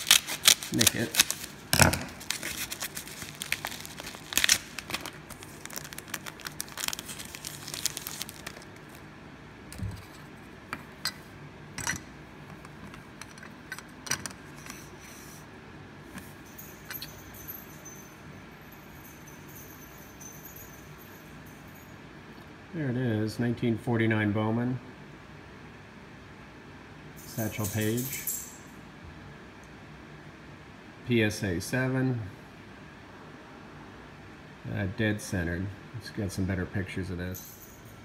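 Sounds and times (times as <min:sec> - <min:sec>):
envelope crinkling and tearing: 0:00.0 - 0:09.0.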